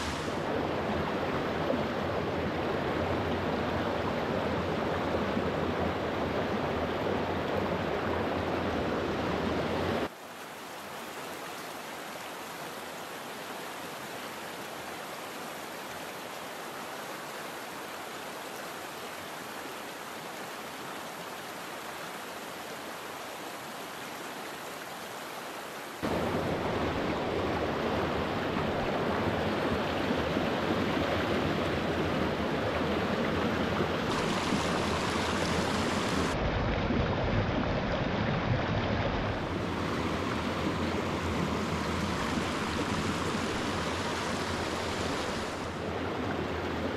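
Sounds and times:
stream rushing over riffles: 0.0 - 46.9.

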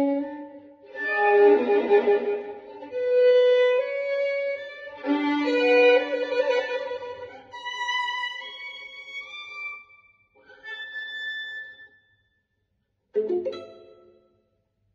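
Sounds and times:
solo violin playing jazz ballad: 0.0 - 9.7.

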